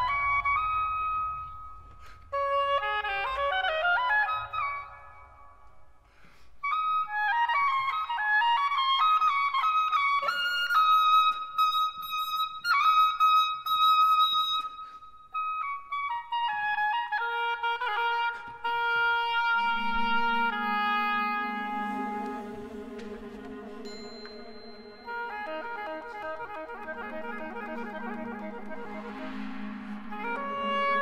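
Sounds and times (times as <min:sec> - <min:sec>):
solo oboe melody: 0:00.0 - 0:05.8, 0:06.6 - 0:31.0
orchestra sustained low notes: 0:19.2 - 0:31.0.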